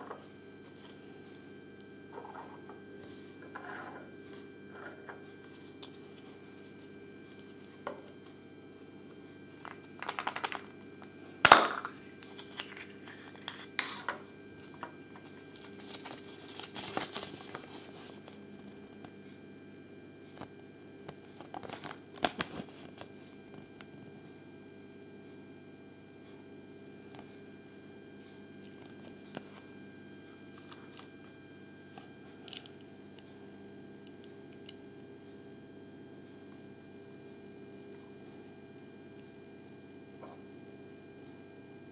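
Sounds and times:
faint steady hum: 0.0s - 41.9s
paper crinkling and rustling: 9.6s - 10.7s, 12.2s - 13.8s, 14.6s - 18.8s, 21.4s - 23.1s.

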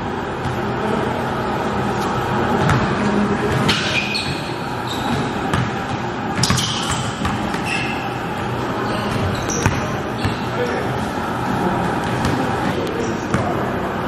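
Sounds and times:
sneaker squeaks: 2.0s - 13.5s
basketball bouncing on gym floor: 2.5s - 8.1s, 8.8s - 11.2s, 11.9s - 13.6s.

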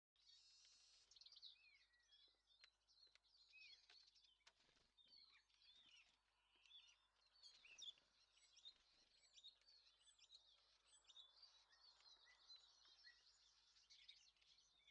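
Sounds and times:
birds chirping and whistling: 5.0s - 14.9s.

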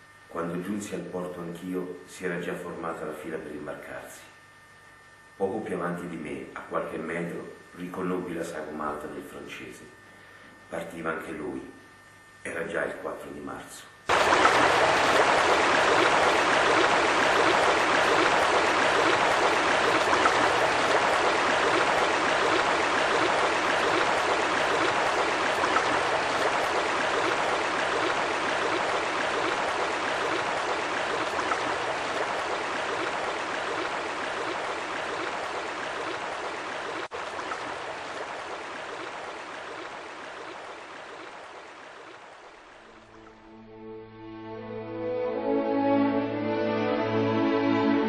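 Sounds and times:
rushing water: 14.1s - 43.4s.

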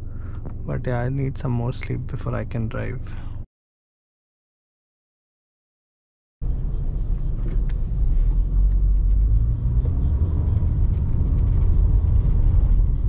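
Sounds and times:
car engine and tyre rumble: 0.0s - 3.4s, 6.4s - 13.0s.

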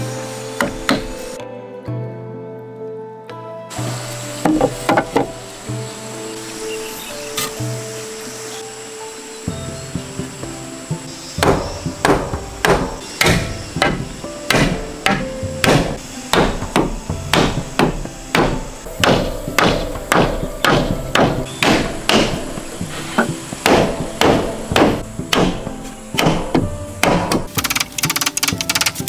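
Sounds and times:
soft background music: 0.0s - 29.0s
hammer knocking wooden joints: 0.6s - 1.1s, 11.4s - 22.4s, 23.2s - 29.0s.

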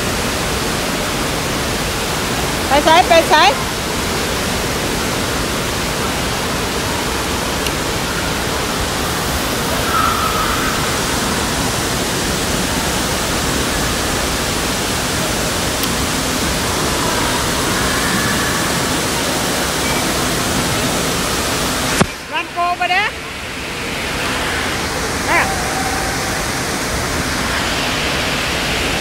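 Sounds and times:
faint voices: 23.9s - 29.0s.

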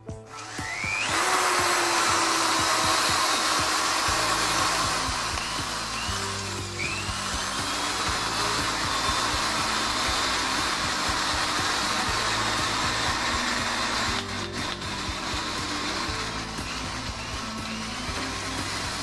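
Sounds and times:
electric drill motor whine: 0.0s - 19.0s
drill trigger click: 0.3s - 19.0s.

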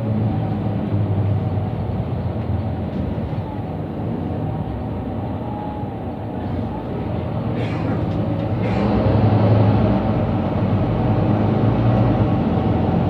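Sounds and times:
bus engine drone: 0.0s - 13.0s
road noise: 0.0s - 13.0s.

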